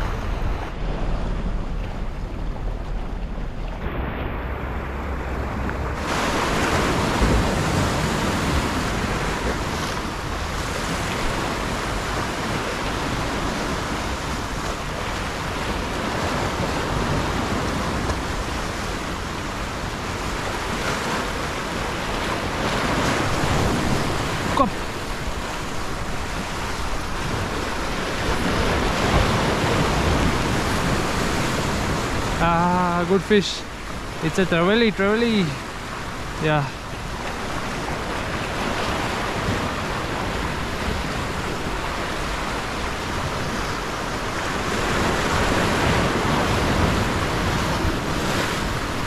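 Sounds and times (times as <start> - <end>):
wind on microphone: 0.0 - 32.9
waves breaking over rocks: 0.0 - 49.0.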